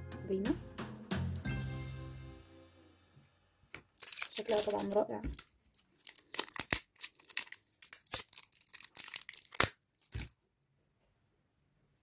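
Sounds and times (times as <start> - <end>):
tape peeling with crackling rips: 4.0 - 10.3.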